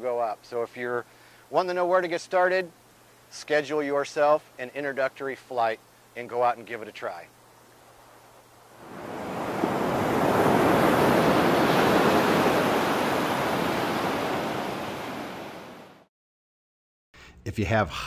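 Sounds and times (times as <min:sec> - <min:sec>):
ocean surf washing on beach: 0:08.7 - 0:16.1.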